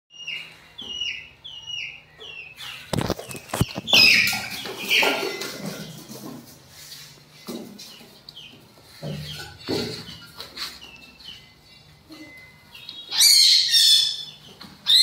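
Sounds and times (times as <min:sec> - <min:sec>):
chick peeping: 0:00.1 - 0:15.0.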